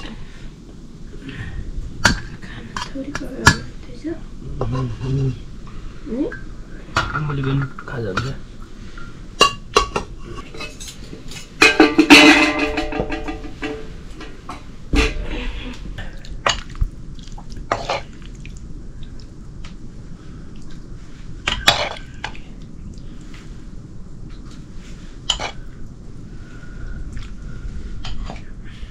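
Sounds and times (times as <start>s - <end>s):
metal dishes clinking and clattering: 6.9s - 8.4s, 9.0s - 15.8s, 17.7s - 18.1s.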